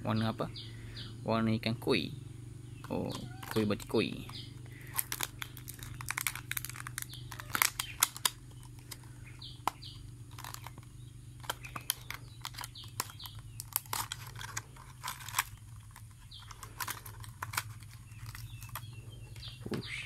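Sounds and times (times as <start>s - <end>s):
bird chirping: 0.0s - 20.0s
plastic packaging crinkling: 4.6s - 19.5s.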